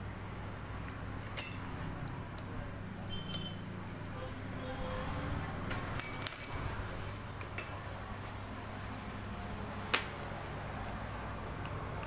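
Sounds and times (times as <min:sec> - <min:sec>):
metal tools clinking: 0:01.3 - 0:01.8, 0:05.7 - 0:07.8.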